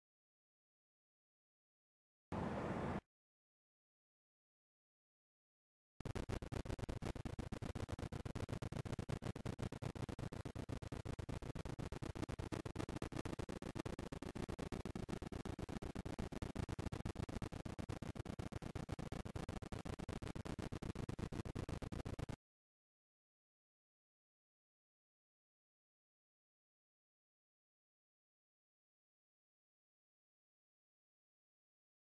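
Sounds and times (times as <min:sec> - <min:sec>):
stuttering crackle of clicks: 0:06.0 - 0:22.4.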